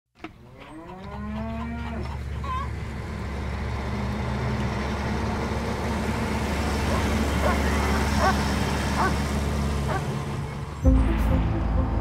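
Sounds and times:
truck rumbling on a road: 0.2s - 12.0s
cow mooing: 0.6s - 2.2s.

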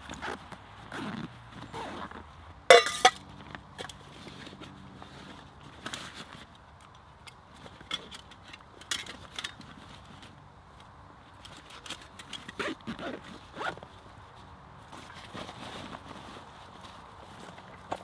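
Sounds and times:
rustling of straps and fabric: 0.0s - 18.0s
zip being pulled: 0.2s - 2.2s.

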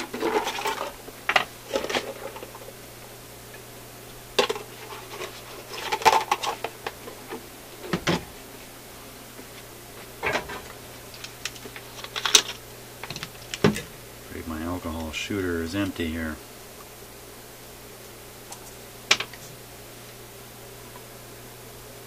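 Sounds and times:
small objects clattering on workbench: 0.0s - 2.7s, 4.4s - 8.2s, 10.2s - 13.9s, 18.5s - 19.5s
faint low hum: 0.0s - 22.0s.

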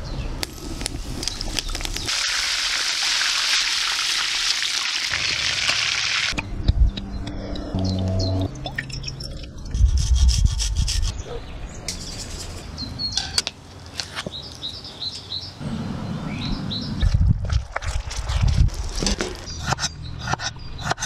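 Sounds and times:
small birds chirping: 11.0s - 13.4s, 14.0s - 17.3s, 19.3s - 21.0s.

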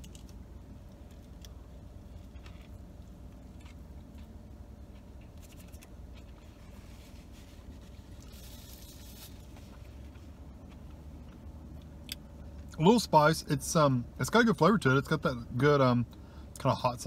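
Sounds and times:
man chewing food: 0.0s - 12.7s
steady low hum: 0.0s - 17.0s
paper napkin rustling: 5.4s - 9.8s.

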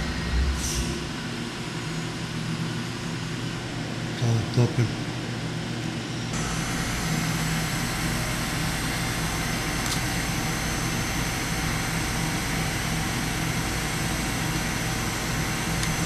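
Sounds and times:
lathe running with whine: 6.3s - 16.0s.

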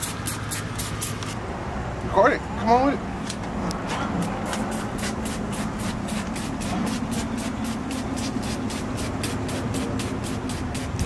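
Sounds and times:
spray bottle hissing: 0.0s - 1.4s, 4.3s - 11.0s
steady low hum: 3.0s - 11.0s.

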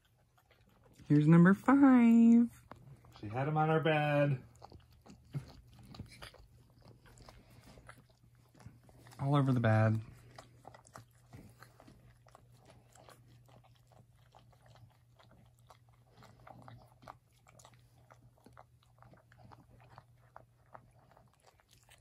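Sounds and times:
dogs licking and suckling: 0.0s - 22.0s.

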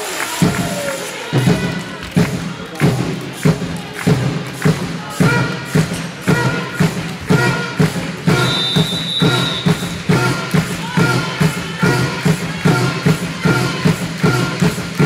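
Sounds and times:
music with steady beat over loudspeakers: 0.0s - 15.0s
high whistle-like tone: 8.3s - 10.0s.

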